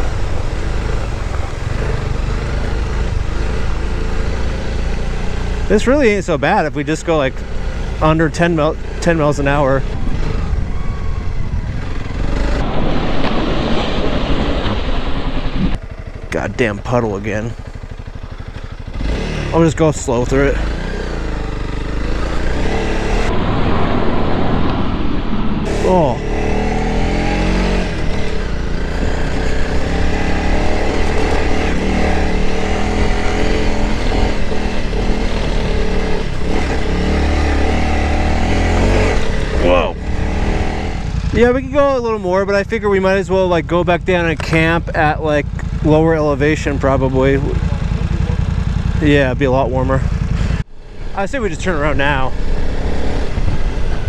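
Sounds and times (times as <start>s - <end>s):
motorcycle engine running: 0.0s - 12.7s, 15.7s - 23.3s, 25.6s - 54.0s
dense rushing noise: 9.6s - 15.8s, 22.2s - 26.9s
wind noise on microphone: 9.8s - 15.8s, 23.2s - 25.7s, 50.4s - 54.0s
steady rushing noise: 20.1s - 42.5s.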